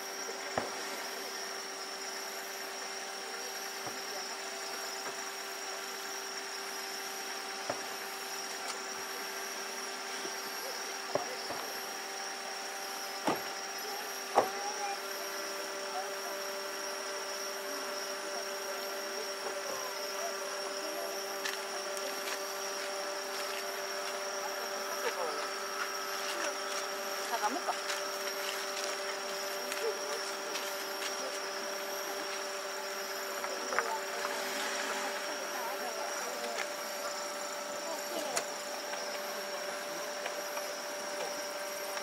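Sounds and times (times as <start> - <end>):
distant firework bursts: 0.5 - 1.3.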